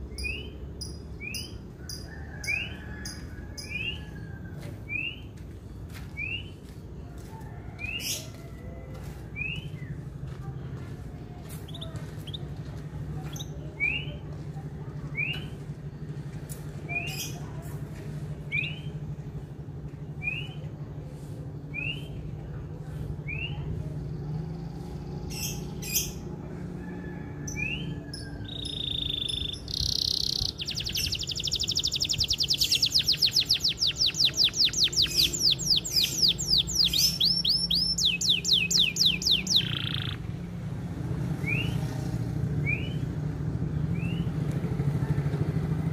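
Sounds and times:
canary singing: 0:00.0 - 0:04.2, 0:11.5 - 0:14.2, 0:27.4 - 0:40.5.

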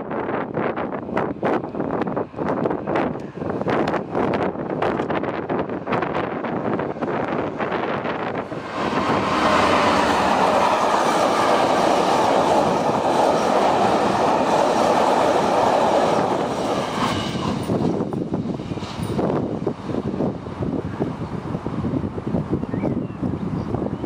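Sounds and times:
train wheels clattering on rails: 0:07.4 - 0:20.4.

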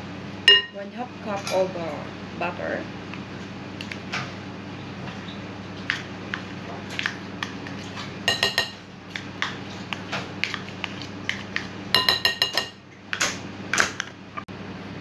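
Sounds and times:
ringing clinks on glass bowl: 0:00.5 - 0:00.8.

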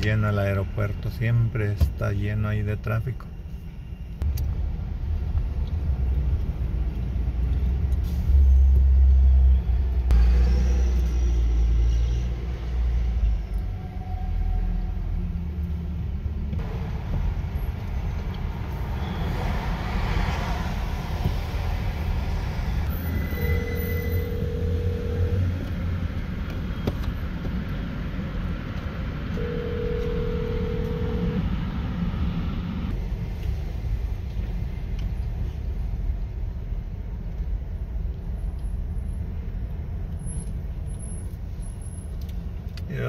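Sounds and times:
car road and engine rumble: 0:00.0 - 0:43.0
long steady tones: 0:23.3 - 0:25.8, 0:29.4 - 0:32.8.

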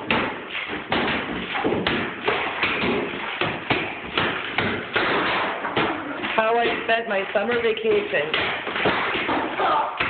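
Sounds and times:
plaster breaking away: 0:00.0 - 0:06.4
hammers pounding plaster wall: 0:00.0 - 0:10.0.

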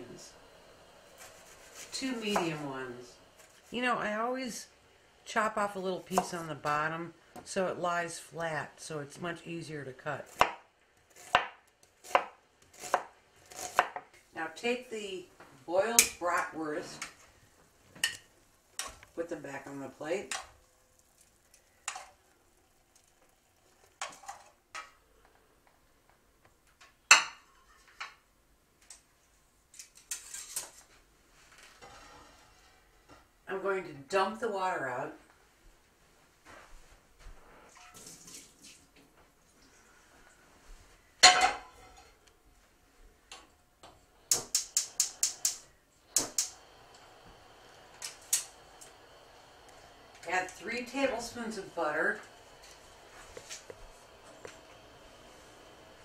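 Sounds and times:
spark igniter clicking: 0:44.3 - 0:47.0, 0:47.7 - 0:49.0.

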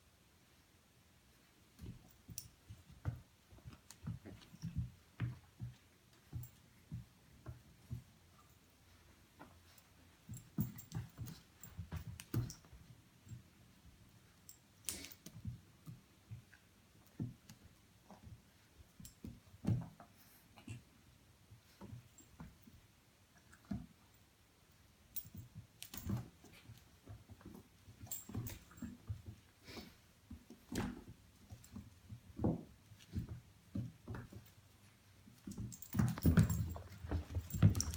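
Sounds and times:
puppy and cat play-fighting: 0:00.1 - 0:37.9
paws and bodies bumping: 0:01.7 - 0:14.6, 0:25.1 - 0:37.9
animals scuffling: 0:25.2 - 0:37.9.

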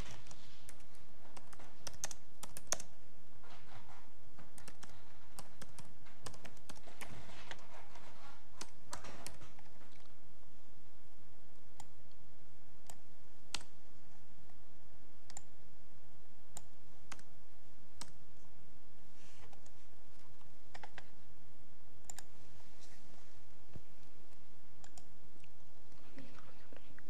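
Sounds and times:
faint soft rustle: 0:18.3 - 0:20.6, 0:22.3 - 0:24.4.

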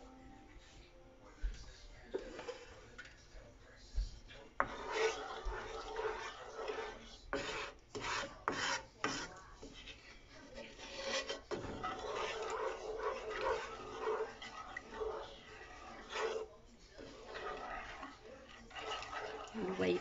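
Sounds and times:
wooden spatula scraping skillet: 0:02.0 - 0:03.2, 0:04.3 - 0:20.0.

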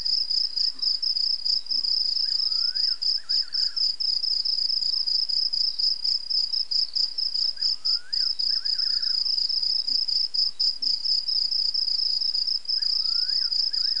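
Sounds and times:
night insects chirping: 0:00.0 - 0:14.0
faint whistle-like call: 0:02.2 - 0:03.9, 0:07.6 - 0:09.4, 0:12.8 - 0:14.0.

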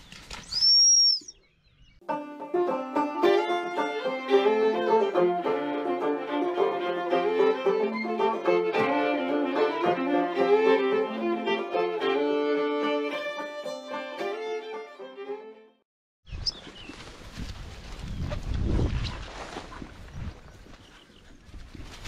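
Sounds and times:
plucked strings: 0:02.0 - 0:15.6
lively fiddle tune: 0:02.0 - 0:15.8.

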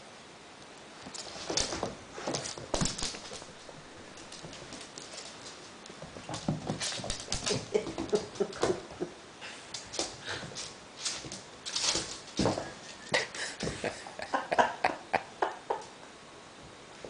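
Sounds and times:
paws scuffling and tapping: 0:01.0 - 0:09.0.

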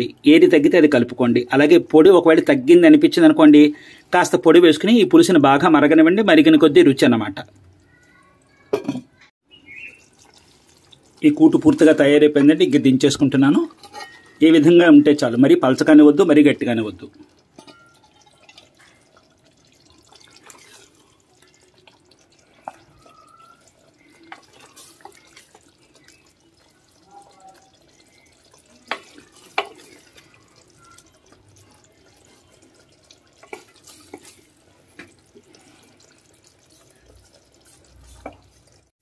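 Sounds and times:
gravy dripping and plopping: 0:00.0 - 0:38.9
ladle knocking against pots: 0:28.8 - 0:30.2.

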